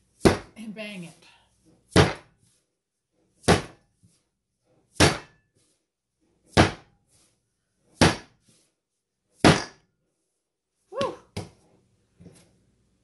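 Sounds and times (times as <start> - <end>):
dough slammed onto counter: 1.9 - 2.3, 5.0 - 5.3, 6.5 - 6.9, 8.0 - 8.4.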